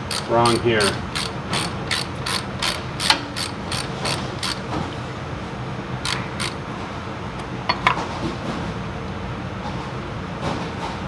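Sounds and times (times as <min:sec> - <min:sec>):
ratchet wrench clicking: 0:00.0 - 0:04.6, 0:06.0 - 0:06.6.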